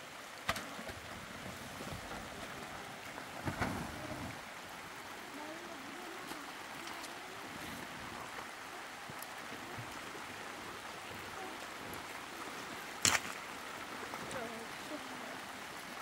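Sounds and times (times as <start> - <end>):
rain hiss: 0.0 - 16.0.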